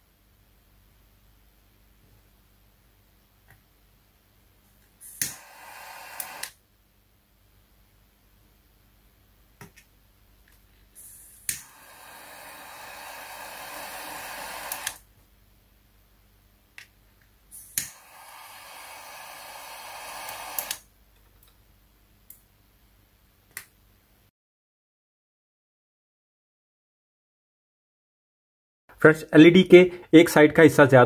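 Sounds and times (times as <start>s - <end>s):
lighter flame hissing: 5.0s - 6.6s, 11.0s - 15.1s, 17.5s - 20.9s
lighter click: 5.1s - 6.6s, 11.4s - 12.7s, 13.3s - 15.0s, 17.6s - 20.8s.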